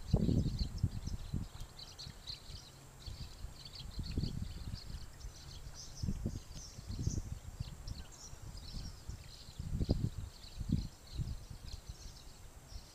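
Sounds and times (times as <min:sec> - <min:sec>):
flock of birds chirping: 0:00.0 - 0:12.9
low rumbling gusts: 0:03.1 - 0:12.3.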